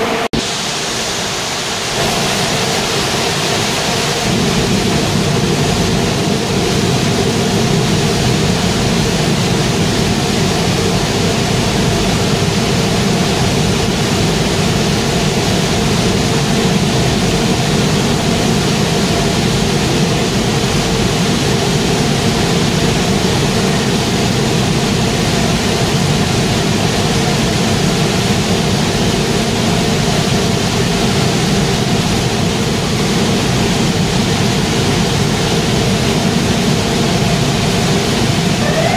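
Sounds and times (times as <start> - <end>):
loud machinery drone: 0.0 - 16.4, 38.2 - 38.9.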